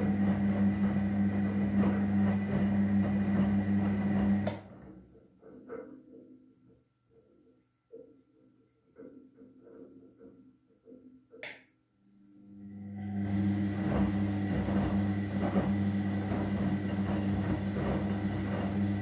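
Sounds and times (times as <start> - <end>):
washing machine motor hum: 0.0 - 5.0, 12.4 - 19.0.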